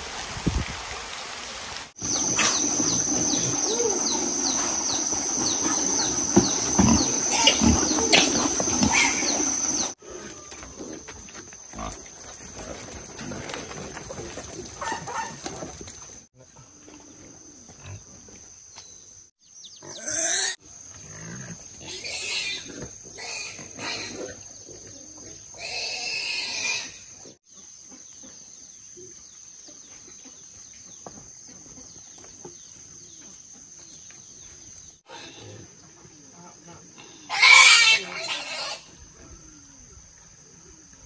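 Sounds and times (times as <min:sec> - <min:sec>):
wild boars squealing: 0:02.0 - 0:11.0, 0:19.8 - 0:24.4, 0:25.6 - 0:27.1, 0:37.0 - 0:39.0.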